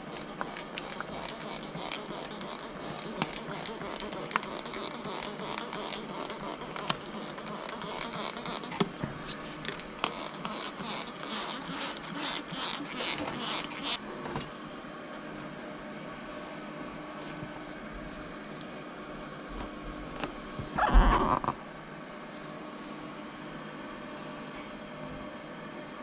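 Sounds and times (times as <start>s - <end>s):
spray bottle spritzing: 10.1s - 14.0s.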